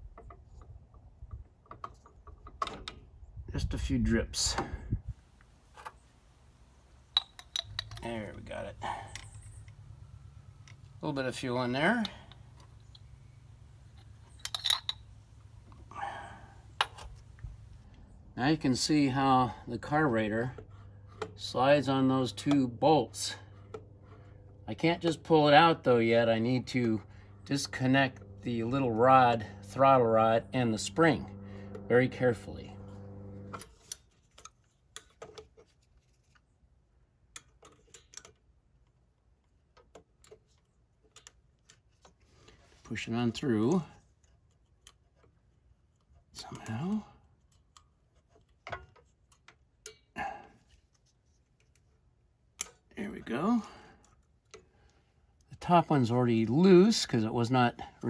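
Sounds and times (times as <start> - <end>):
low hum: 4.7 - 34.0
small metal clicks and taps: 7.1 - 8.1, 33.5 - 36.4, 37.2 - 42.2, 43.7 - 50.1, 50.9 - 52.9
metal hand tools clinking: 7.1 - 9.5, 13.9 - 15.2.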